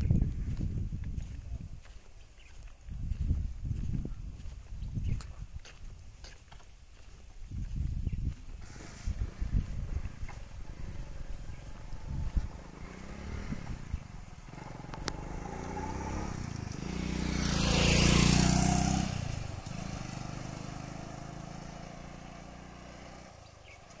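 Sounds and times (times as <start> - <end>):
motorbike passing by: 8.6 - 24.0.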